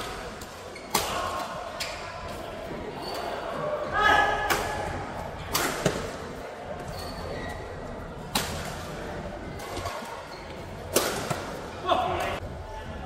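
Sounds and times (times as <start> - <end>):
rackets hitting shuttlecock: 4.4 - 6.2, 10.9 - 11.6.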